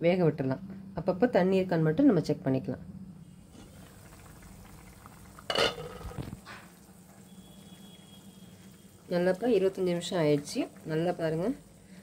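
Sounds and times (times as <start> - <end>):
gravy boiling in a pot: 3.2 - 12.0
pot lid clinking: 5.5 - 6.2.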